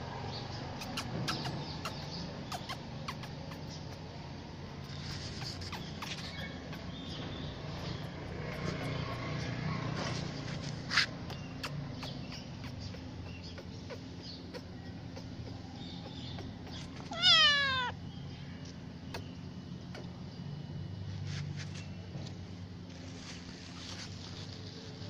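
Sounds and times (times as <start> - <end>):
low background hum: 0.0 - 25.0
kitten meowing: 13.6 - 18.0.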